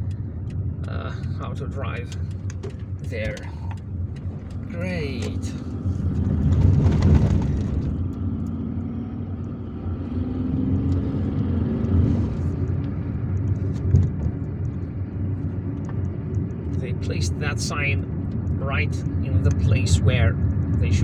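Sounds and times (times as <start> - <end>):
car engine and tyre rumble: 0.0 - 21.0.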